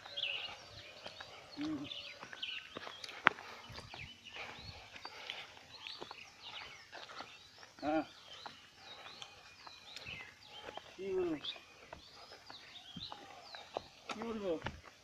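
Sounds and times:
footsteps on grass: 0.0s - 15.0s
small birds chirping: 0.0s - 15.0s.

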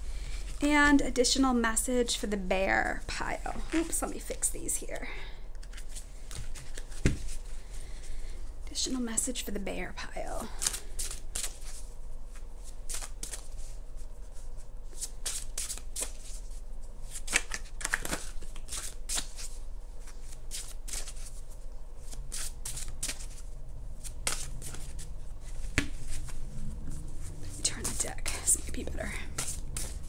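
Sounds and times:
cards being shuffled: 5.6s - 7.4s, 12.6s - 13.7s, 14.9s - 16.4s, 17.1s - 30.0s.

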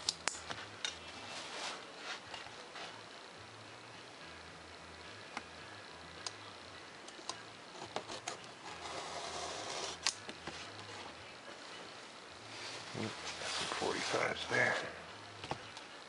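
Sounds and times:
craft knife clicks and taps: 0.0s - 1.0s.

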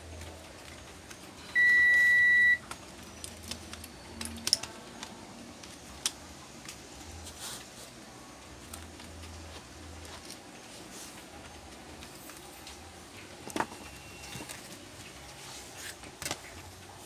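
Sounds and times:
high electronic beep: 1.5s - 2.6s
laptop parts clicking and tapping: 2.6s - 6.8s.

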